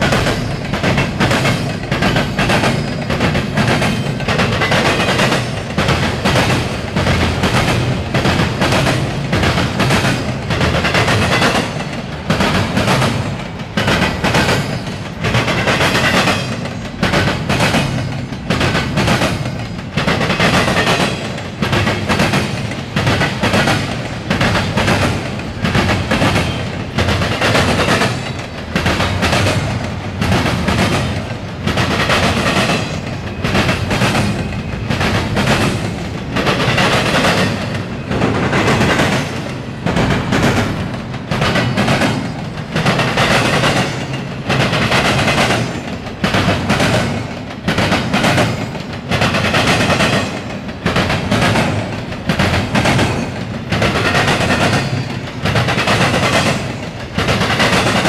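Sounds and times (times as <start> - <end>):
train wheels clattering on track: 0.0 - 58.0.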